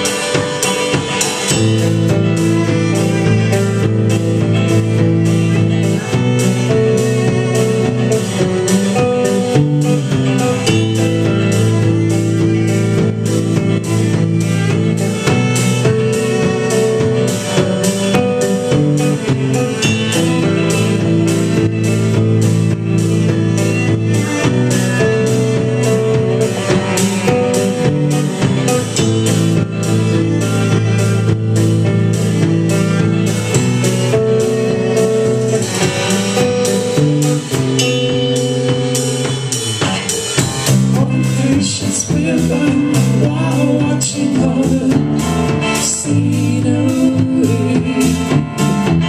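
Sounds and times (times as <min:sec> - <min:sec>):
cello: 0:00.0 - 0:49.0
electric bass guitar: 0:00.0 - 0:49.0
strummed acoustic guitar: 0:00.0 - 0:49.0.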